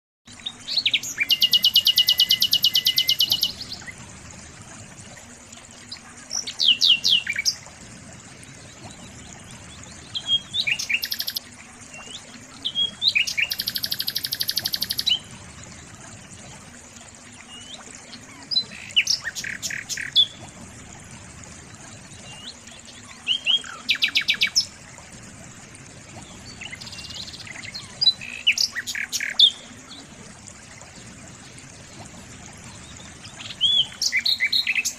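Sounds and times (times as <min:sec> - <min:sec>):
songbird trilling and chirping: 0:10.4 - 0:11.4, 0:13.2 - 0:15.1.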